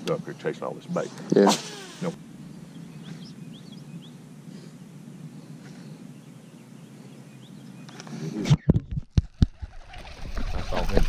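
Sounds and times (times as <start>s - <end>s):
bird chirping: 0.0s - 8.7s.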